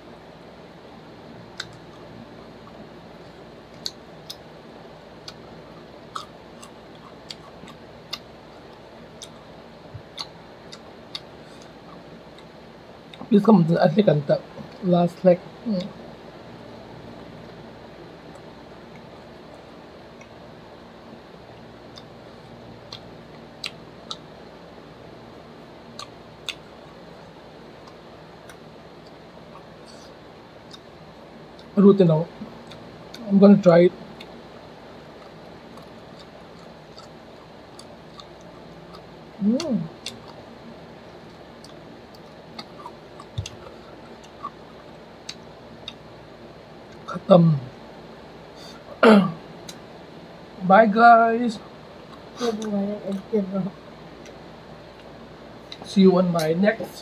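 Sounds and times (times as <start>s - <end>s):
steady low hum: 0.0s - 57.0s
lip smacks and mouth clicks: 1.5s - 2.8s, 3.7s - 4.5s, 5.2s - 5.5s, 6.1s - 12.5s, 21.6s - 22.2s, 22.8s - 24.3s, 25.9s - 26.8s, 35.1s - 39.1s, 40.0s - 46.1s
crunchy chewing of fried chicken: 1.5s - 13.3s, 16.7s - 31.8s, 34.0s - 48.9s.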